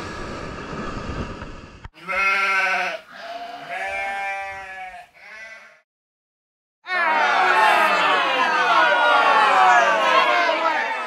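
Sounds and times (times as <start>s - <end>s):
wind: 0.0s - 5.0s
sheep bleating: 2.0s - 5.8s.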